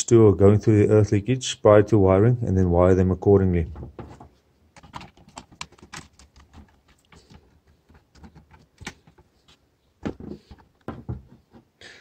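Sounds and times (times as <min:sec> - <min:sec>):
knock: 0:10.0 - 0:11.4.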